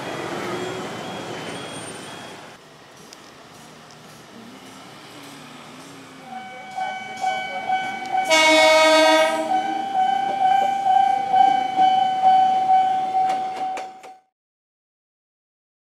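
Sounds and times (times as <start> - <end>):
level crossing alarm ringing: 0.0 - 2.6, 6.2 - 14.2
train horn: 6.3 - 11.0.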